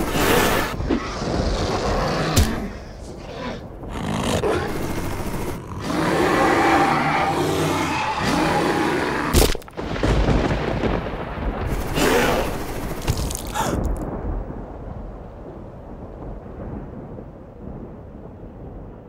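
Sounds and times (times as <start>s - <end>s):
rough roar and rumble: 0.0s - 9.4s.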